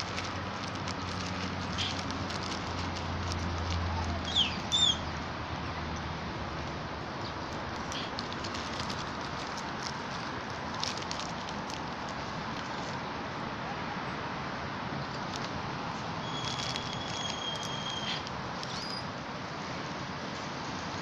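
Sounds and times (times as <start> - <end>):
faint crackles of chip bag: 0.0 - 5.0, 7.4 - 13.1, 15.0 - 19.1
high steady whistling tone: 16.3 - 19.0.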